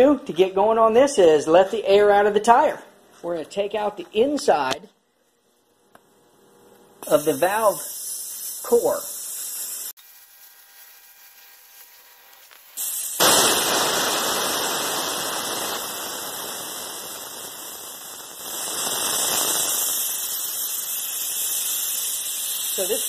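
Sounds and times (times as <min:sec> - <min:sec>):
air hissing from tire valve: 0:07.0 - 0:10.0, 0:12.7 - 0:23.0.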